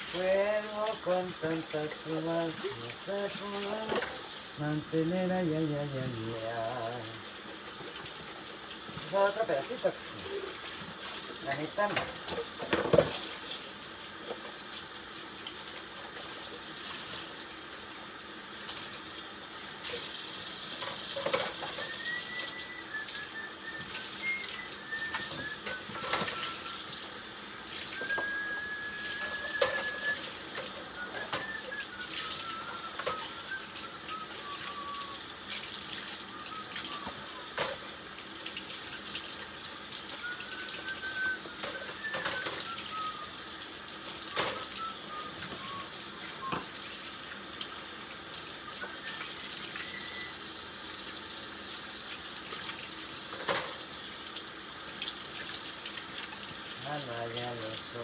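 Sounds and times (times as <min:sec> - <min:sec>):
tap water running into sink: 0:00.0 - 0:58.0
dishes knocking and clinking: 0:11.9 - 0:13.3.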